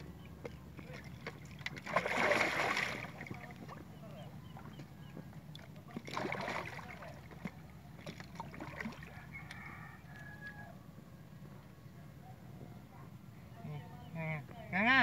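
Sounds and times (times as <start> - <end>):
fish splashing at surface: 0.8 - 3.8, 5.9 - 9.2.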